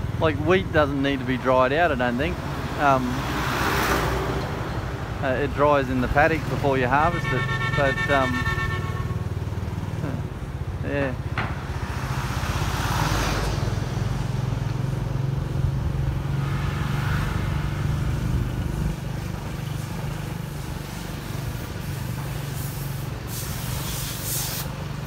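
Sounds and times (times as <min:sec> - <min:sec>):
truck passing: 0:00.0 - 0:25.0
wind and road noise: 0:00.0 - 0:25.0
short hiss bursts: 0:20.8 - 0:24.9.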